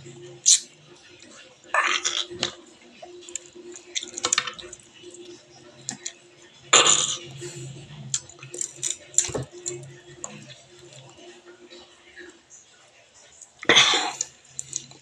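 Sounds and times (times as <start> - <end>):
chewing clicks: 13.4 - 15.0.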